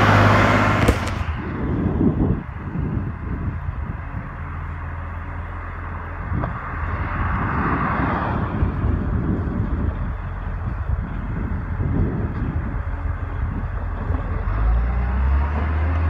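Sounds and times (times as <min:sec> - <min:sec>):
car passing with tyre noise: 0:00.0 - 0:03.0, 0:04.9 - 0:12.2
truck diesel engine humming: 0:00.0 - 0:16.0.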